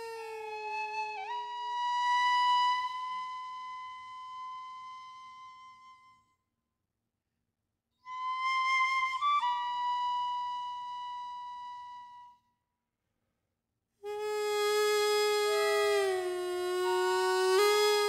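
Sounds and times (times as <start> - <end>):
bamboo flute high note: 8.1 - 12.4, 14.1 - 18.0
double-reed pipe note: 14.1 - 18.0.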